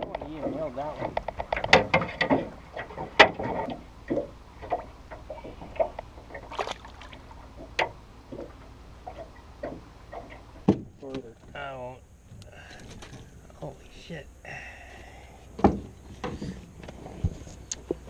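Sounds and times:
knocks against metal boat: 9.1 - 11.0.

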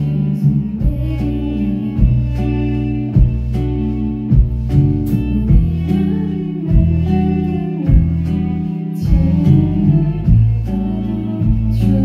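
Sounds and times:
band playing a slow song: 0.0 - 12.0
electric guitar: 0.0 - 12.0.

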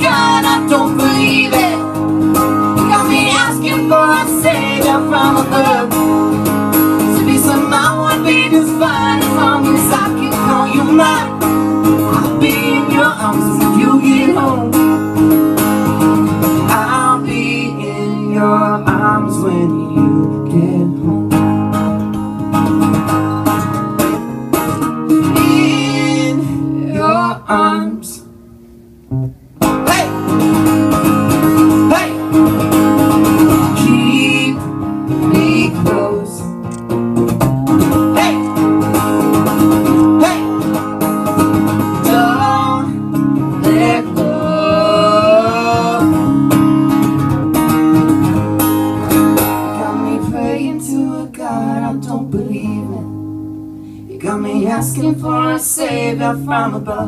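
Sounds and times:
person singing: 0.0 - 2.0, 2.8 - 6.1, 7.0 - 14.9, 16.6 - 21.3, 25.2 - 28.2, 31.8 - 32.4, 33.5 - 36.5, 38.1 - 38.6, 41.9 - 46.4, 49.4 - 53.2, 54.1 - 57.0
acoustic guitars playing: 0.0 - 57.0.

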